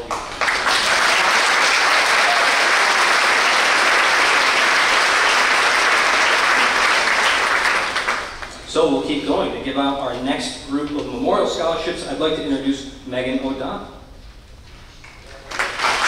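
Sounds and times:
audience applause: 0.0 - 8.6, 15.4 - 16.0.

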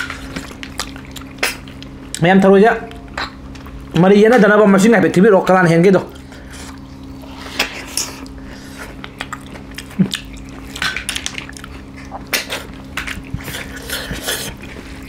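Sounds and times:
chewing and smacking: 0.0 - 4.0, 6.1 - 15.0.

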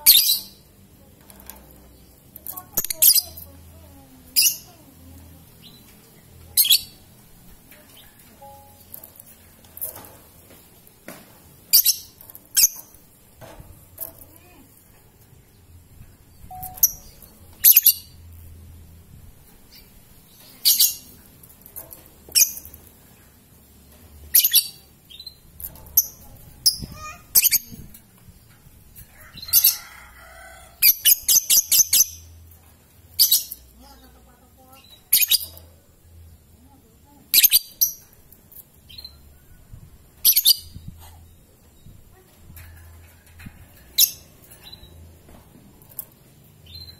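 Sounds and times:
lovebirds chirping: 1.5 - 13.4, 14.0 - 18.5, 19.4 - 21.7, 33.1 - 35.8.

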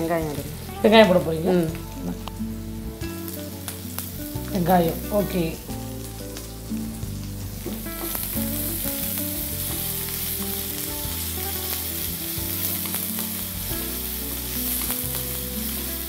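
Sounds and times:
onions sizzling in hot oil: 0.0 - 16.0.

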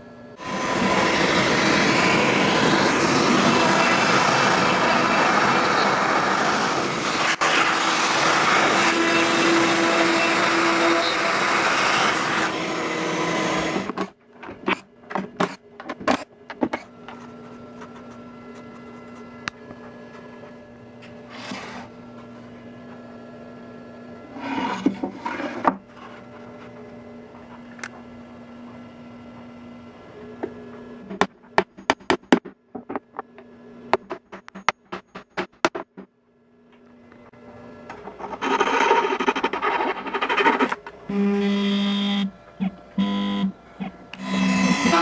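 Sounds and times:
router spindle cutting wood: 0.4 - 14.0, 44.0 - 45.0.

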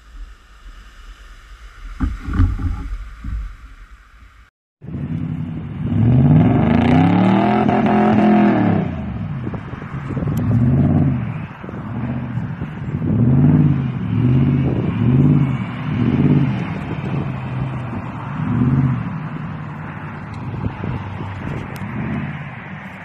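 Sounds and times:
pickup truck engine revving: 4.9 - 9.3, 10.4 - 22.8.

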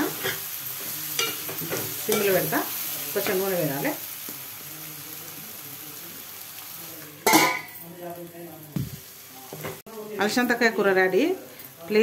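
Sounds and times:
faint sizzle: 0.0 - 12.0
metal lid clanging on pot: 7.3 - 7.8.

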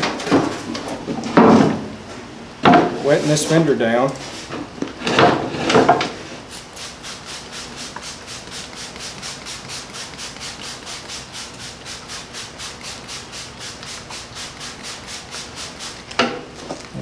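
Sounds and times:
spray bottle squirting: 6.5 - 17.0.

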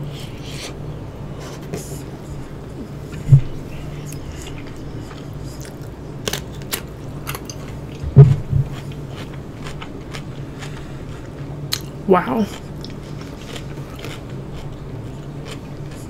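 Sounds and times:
chewing and wet mouth clicks: 12.8 - 16.0.

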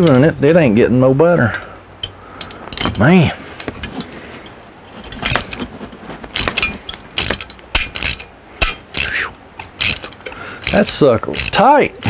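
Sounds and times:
wrench turning stuck threads: 3.7 - 12.0.

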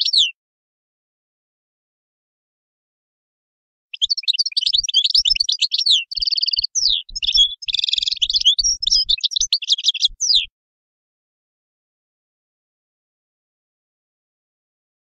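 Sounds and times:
bird twittering song: 0.0 - 0.4, 3.9 - 10.5.

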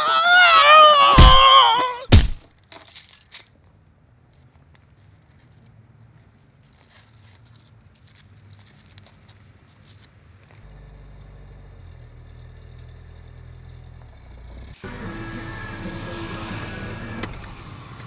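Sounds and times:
man screaming: 0.0 - 2.2
loud sharp bang: 2.1 - 2.4
low hum: 10.6 - 18.0.

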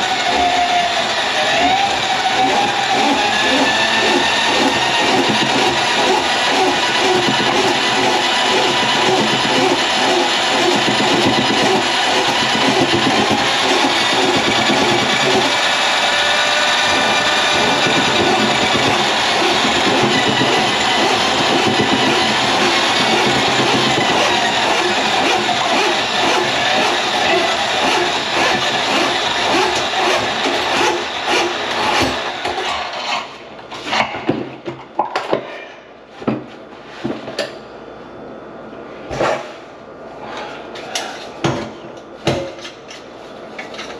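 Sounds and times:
drain-cleaning machine running: 0.0 - 32.9.

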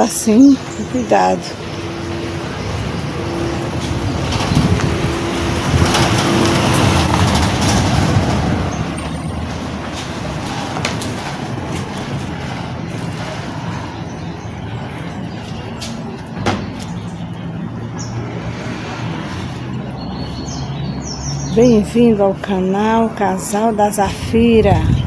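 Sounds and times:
vehicle engine: 0.0 - 25.0.

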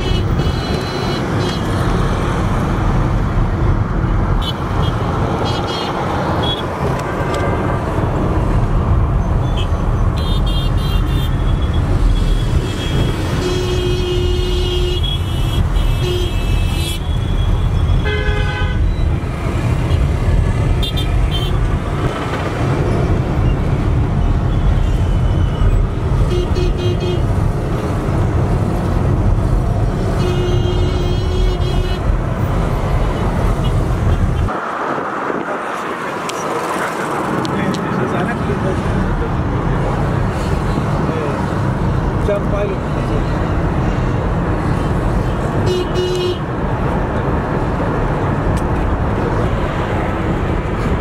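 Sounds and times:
road and engine rumble: 0.0 - 51.0
high-pitched car horn beeps: 24.8 - 27.2, 45.6 - 46.4.

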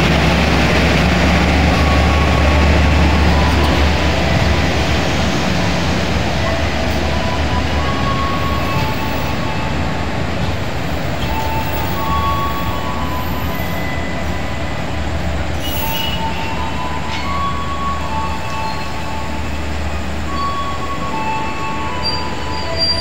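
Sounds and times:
train coaches rumbling past: 0.0 - 23.0
metallic wheel squeals: 15.6 - 19.1, 20.3 - 23.0.

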